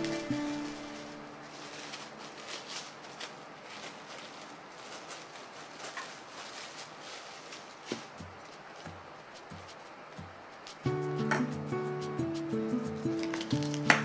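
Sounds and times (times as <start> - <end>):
background music: 0.0 - 2.1, 10.8 - 14.0
cling film crinkling: 0.0 - 10.9, 12.9 - 14.0.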